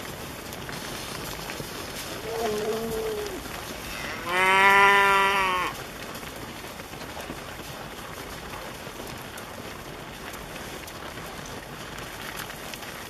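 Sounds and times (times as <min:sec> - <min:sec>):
cow mooing: 0:02.2 - 0:05.8.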